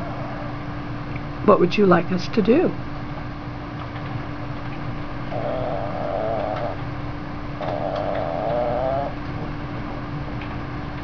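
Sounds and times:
small dog grumbling: 5.3s - 6.9s, 7.6s - 9.2s.

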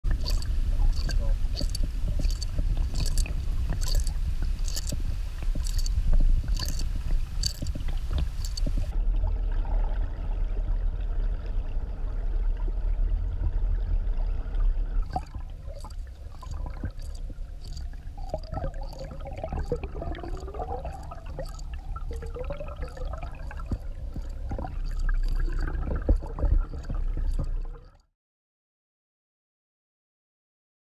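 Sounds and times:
muffled underwater water noise: 0.0s - 28.1s
regular clicking: 0.1s - 8.9s, 15.1s - 27.6s.

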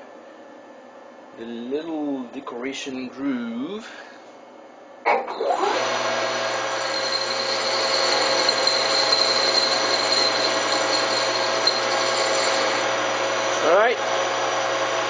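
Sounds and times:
metal lathe spinning up: 5.6s - 12.9s.

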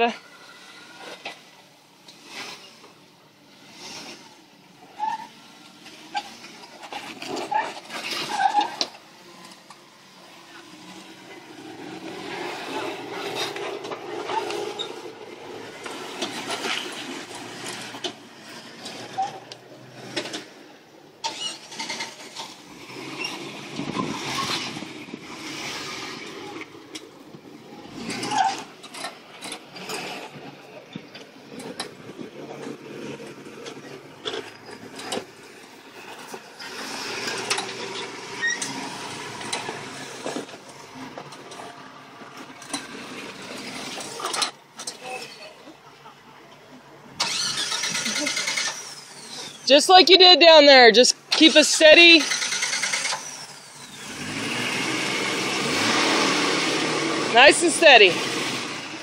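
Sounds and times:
car engine working under load: 0.0s - 59.0s
tyres squeaking on rock: 36.6s - 38.9s.

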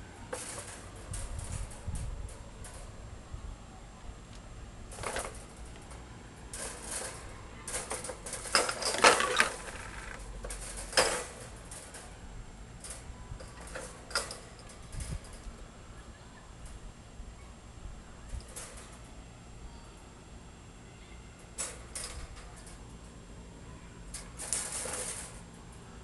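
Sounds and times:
wire cage rattling and clinking: 0.2s - 3.1s, 4.9s - 15.7s, 18.3s - 19.4s, 21.4s - 23.4s, 24.1s - 25.9s.

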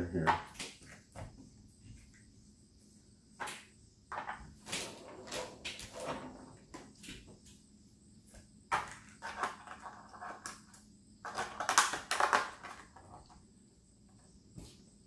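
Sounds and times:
plastic shell crinkling and clattering: 11.2s - 13.3s.

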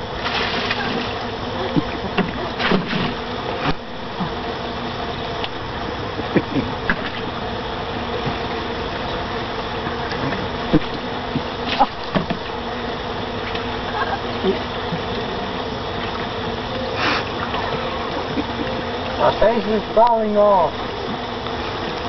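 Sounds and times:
water splashing into pool: 0.0s - 3.9s
buzzing hum: 0.0s - 22.0s.

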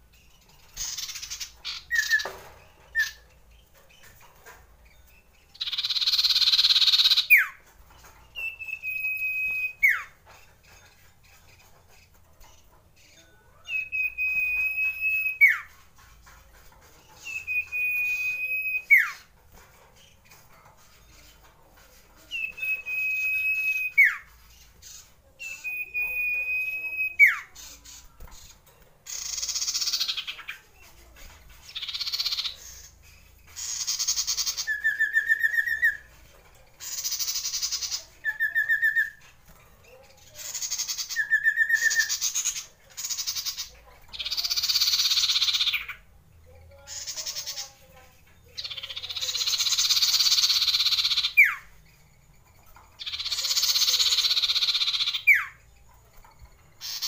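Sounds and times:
bird singing rasping rolls: 0.0s - 57.0s
bird whistles: 8.4s - 10.1s, 17.3s - 19.2s, 22.4s - 24.3s.

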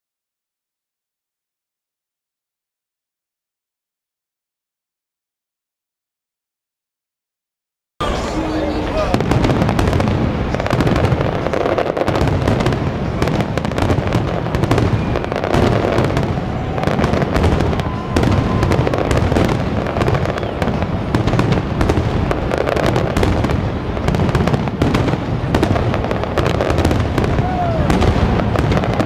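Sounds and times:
firework shells bursting: 8.0s - 29.0s.

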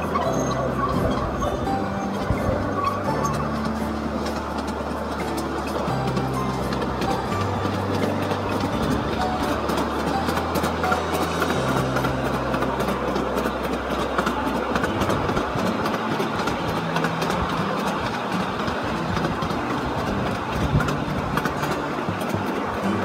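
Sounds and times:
miniature train wheels clattering: 0.0s - 23.0s.

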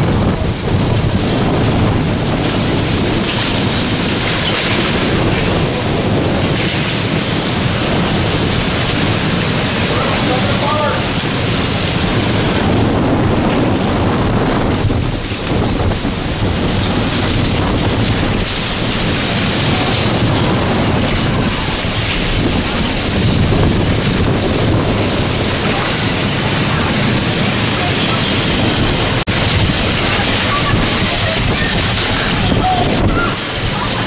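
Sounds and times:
driving rain: 0.0s - 34.0s
strong wind rushing: 0.0s - 34.0s.

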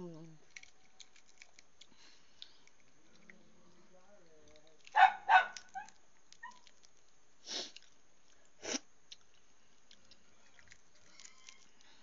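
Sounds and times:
person sniffing: 7.4s - 7.8s.

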